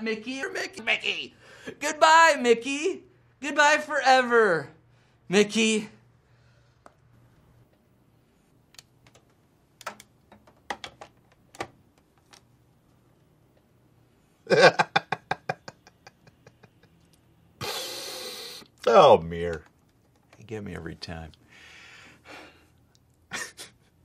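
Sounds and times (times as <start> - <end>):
clicks and taps at a desk: 8.8 - 12.4
man's stifled laugh: 14.5 - 17.0, 23.3 - 24.0.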